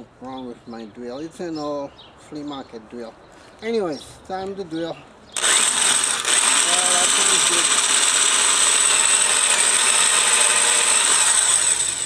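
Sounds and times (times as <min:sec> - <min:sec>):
electric drill whining into wood: 0:05.4 - 0:12.0.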